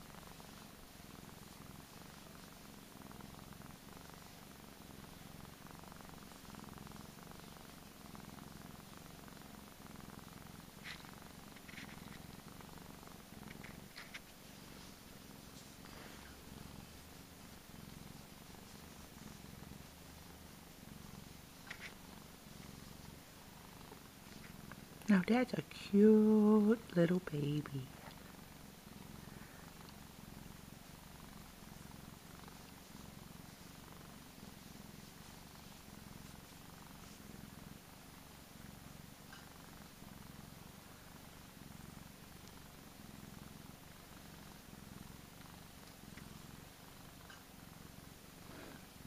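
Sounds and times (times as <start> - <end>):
cat purring: 0.0 - 49.0
fingers rustling through fur: 10.8 - 12.5, 13.1 - 26.9, 30.9 - 37.2.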